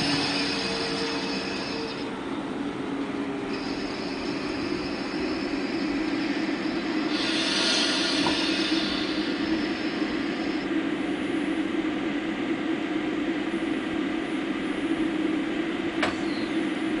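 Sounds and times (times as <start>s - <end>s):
high squeal: 0.0s - 2.2s, 3.4s - 10.6s
train wheels rumbling on rails: 0.0s - 14.1s.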